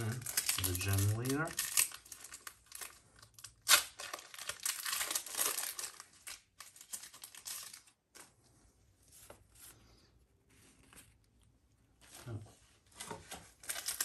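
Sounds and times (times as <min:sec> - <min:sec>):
foil wrapper crinkling: 0:00.0 - 0:08.0, 0:13.5 - 0:14.0.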